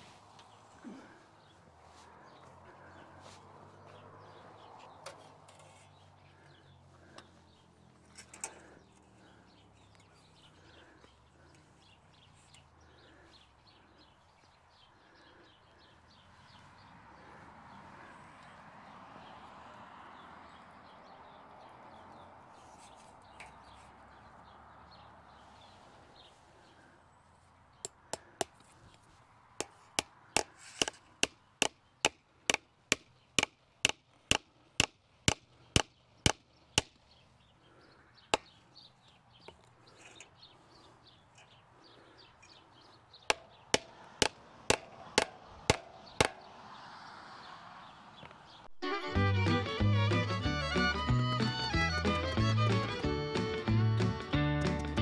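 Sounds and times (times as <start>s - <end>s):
hammer striking staples into wood: 43.3s - 46.5s.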